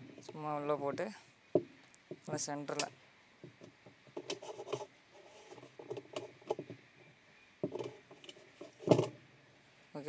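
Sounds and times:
plastic scraping and clicking: 0:02.8 - 0:06.8, 0:07.6 - 0:09.2.

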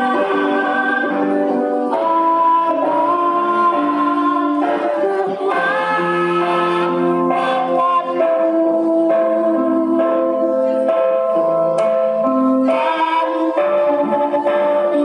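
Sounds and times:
children singing: 0:00.0 - 0:09.6.

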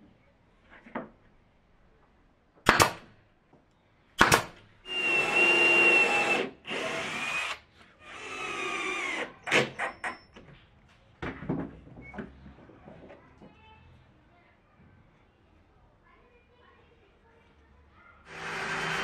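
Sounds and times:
nail gun firing: 0:02.6 - 0:03.1, 0:04.2 - 0:07.6
power drill boring into plywood: 0:04.9 - 0:09.6, 0:18.3 - 0:19.0.

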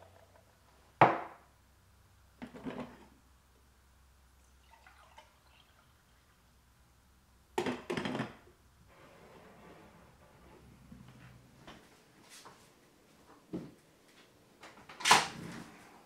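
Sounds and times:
mug knocking on countertop: 0:01.0 - 0:01.4
coffee pouring into mug: 0:04.5 - 0:06.4.

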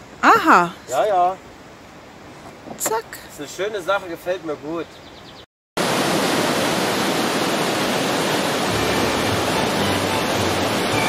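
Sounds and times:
waterfall rushing: 0:05.8 - 0:11.0.

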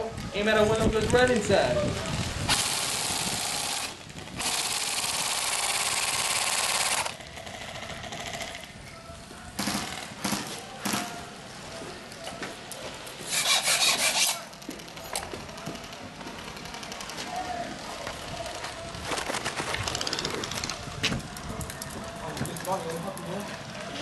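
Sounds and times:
airsoft rifle firing full auto: 0:02.5 - 0:08.6.

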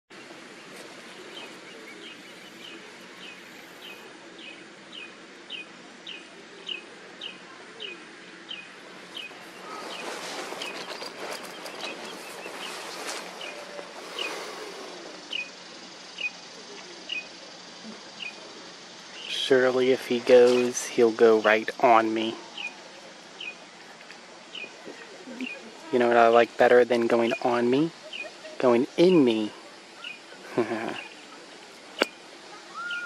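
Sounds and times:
rustling noise: 0:00.2 - 0:04.0, 0:08.7 - 0:15.4, 0:20.1 - 0:21.5
bird chirping: 0:00.2 - 0:17.4, 0:18.0 - 0:23.9, 0:24.5 - 0:33.0.

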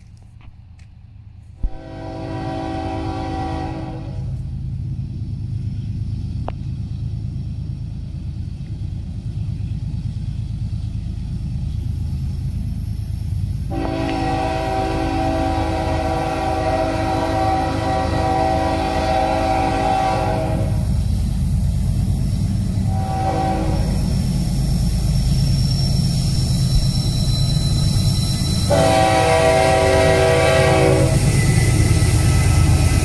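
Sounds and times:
locomotive engine rumble: 0:00.0 - 0:33.0
train horn chord blast: 0:01.6 - 0:04.4, 0:13.7 - 0:21.0, 0:22.9 - 0:24.1, 0:28.6 - 0:31.3.

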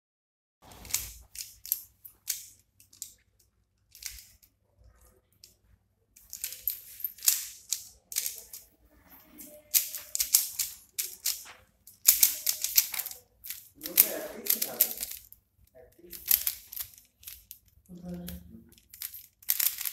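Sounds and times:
puzzle cube plastic clicks: 0:00.7 - 0:04.5, 0:06.2 - 0:08.8, 0:09.7 - 0:15.4, 0:16.0 - 0:19.9.

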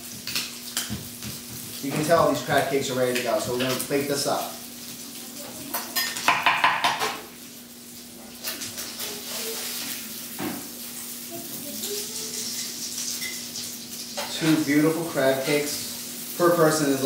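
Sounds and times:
hot pan sizzling: 0:00.0 - 0:17.0
dishes and utensils clattering: 0:05.5 - 0:07.3, 0:12.4 - 0:14.6.

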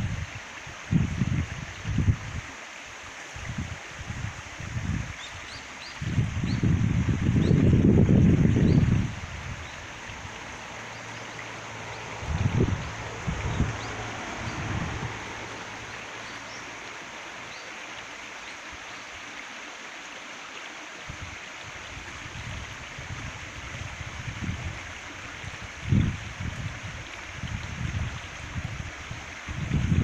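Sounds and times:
stream trickling over stones: 0:00.0 - 0:30.0
low rumbles: 0:07.7 - 0:16.9.

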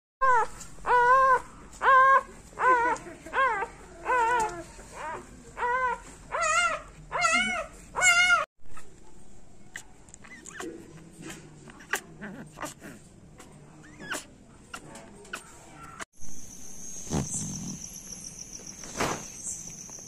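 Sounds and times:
puppy crying in high squeals: 0:00.2 - 0:08.9
faint puppy whimper: 0:00.2 - 0:09.0, 0:09.6 - 0:16.1.

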